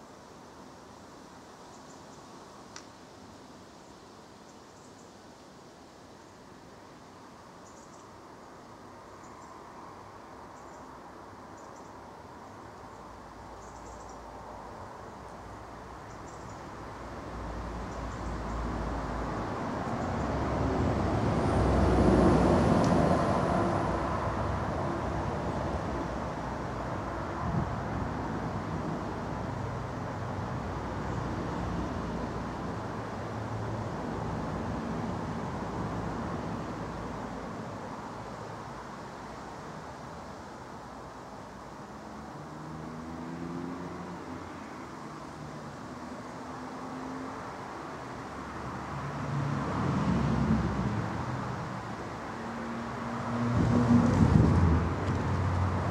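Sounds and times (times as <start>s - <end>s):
traffic noise: 0.0s - 55.9s
road vehicle passing: 17.3s - 39.8s, 41.5s - 55.9s.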